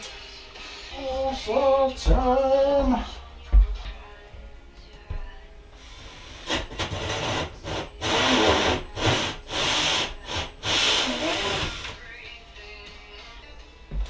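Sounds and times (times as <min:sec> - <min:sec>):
drill cutting with hole saw: 0:06.0 - 0:12.0.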